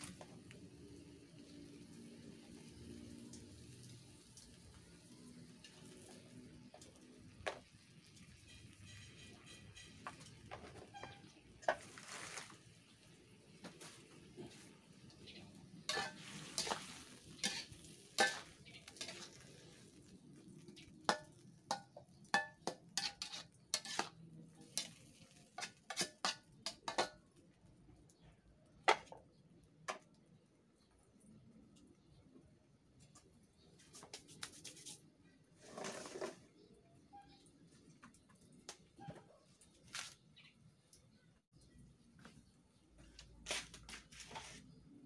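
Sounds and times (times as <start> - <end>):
food sizzling in a pan: 0.0 - 9.0, 13.6 - 27.2
metal spatula scraping a wok: 14.2 - 27.2, 35.6 - 36.7
metal lid clanking on wok: 15.9 - 16.8, 17.4 - 19.3.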